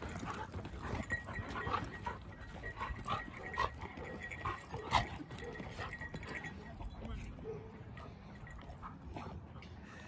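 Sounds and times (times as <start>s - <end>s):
dogs play-fighting vocal noises: 0.0s - 6.2s.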